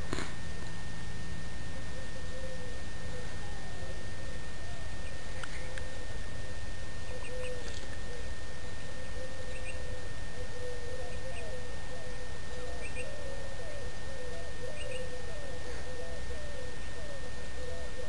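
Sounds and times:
dove cooing: 1.6 - 18.0
small birds chirping: 7.0 - 18.0.

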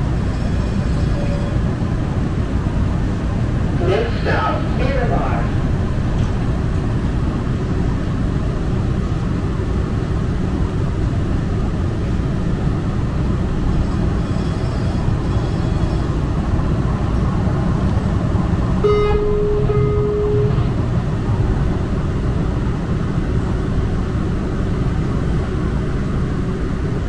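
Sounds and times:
light-rail train rumble: 0.0 - 27.0
faint high whine: 18.8 - 20.8
steady tone: 18.8 - 21.4.

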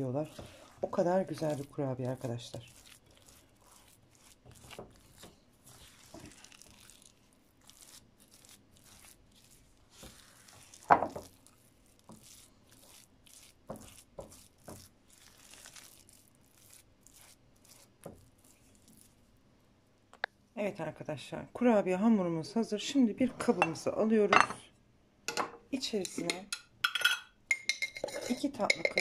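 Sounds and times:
spatula scraping dough in bowl: 0.0 - 19.2, 28.0 - 29.0.

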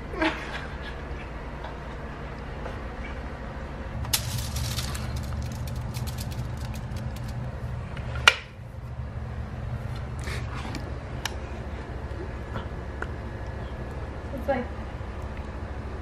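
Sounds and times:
steady low hum: 0.0 - 16.0
paint pouring wet clicks: 4.0 - 7.4.

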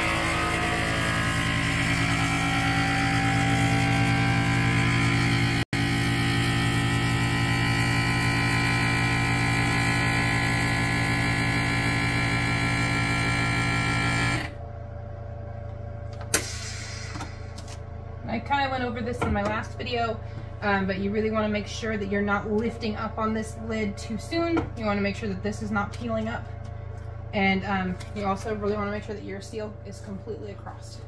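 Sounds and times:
vacuum sealer pump humming: 0.0 - 18.2.

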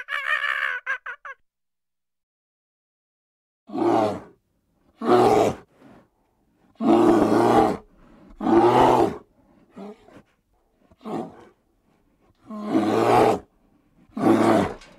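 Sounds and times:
lion roaring: 3.7 - 4.4, 5.0 - 6.0, 6.8 - 10.3, 10.9 - 11.6, 12.4 - 13.5, 14.1 - 14.9.

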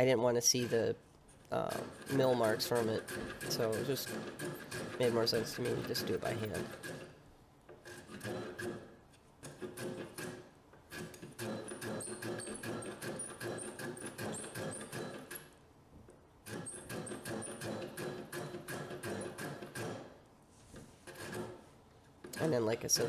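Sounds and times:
block plane rasping strokes on wood: 1.6 - 7.2, 7.8 - 15.4, 16.5 - 20.1, 20.8 - 21.7.

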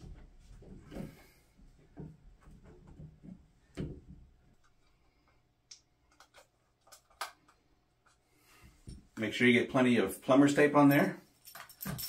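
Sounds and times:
shower fittings clicking and knocking: 11.4 - 12.0.

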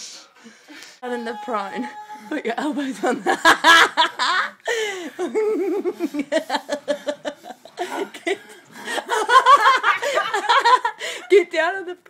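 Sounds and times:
people laughing: 2.7 - 11.4.

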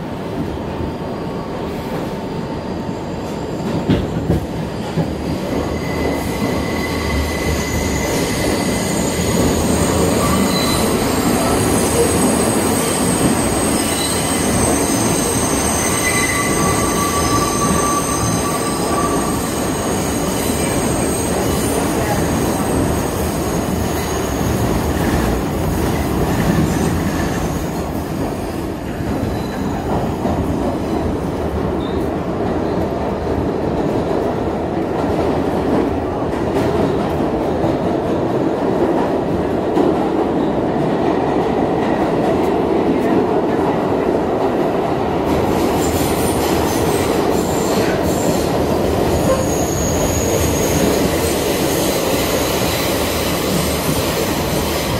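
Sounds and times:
subway train wheels rumbling: 0.0 - 54.9
high wheel squeals: 11.9 - 21.5.

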